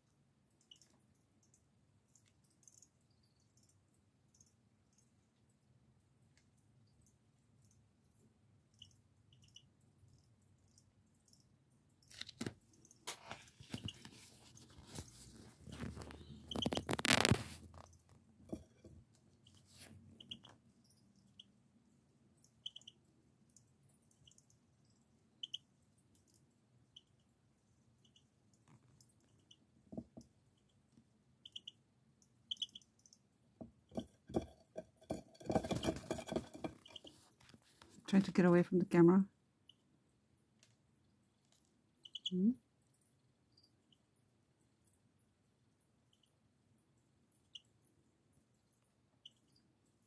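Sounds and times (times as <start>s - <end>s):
scratchy rustling: 13.0s - 17.8s
young bird peeping: 20.2s - 20.5s, 42.0s - 42.5s
soft taps and knocks: 29.8s - 30.4s, 33.6s - 38.0s
faint high chirps: 31.4s - 33.0s, 42.0s - 42.6s.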